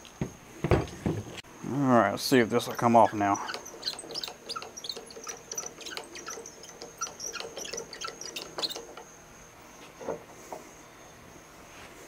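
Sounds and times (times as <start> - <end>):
soft knocks of sliding metal: 2.7 - 9.1.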